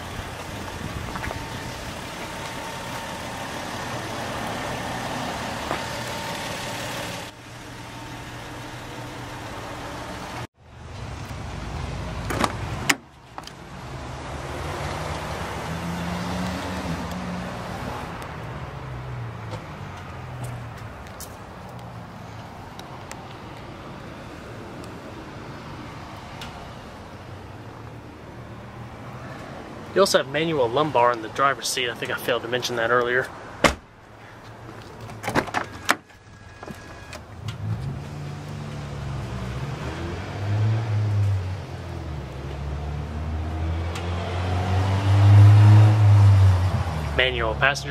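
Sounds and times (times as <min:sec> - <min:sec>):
low engine hum: 0:00.0 - 0:21.1
low vehicle hum: 0:00.0 - 0:47.9
outdoor traffic noise: 0:00.0 - 0:47.9.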